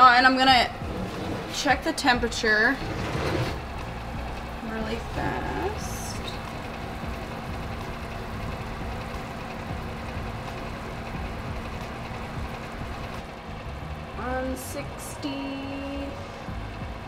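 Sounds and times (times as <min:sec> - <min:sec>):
oven fan humming: 0:00.0 - 0:17.0.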